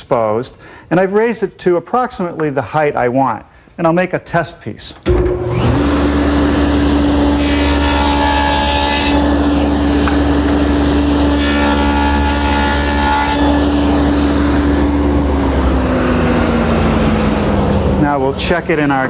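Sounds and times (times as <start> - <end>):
table saw humming: 5.1 - 19.0
saw cutting into plywood: 5.3 - 17.3.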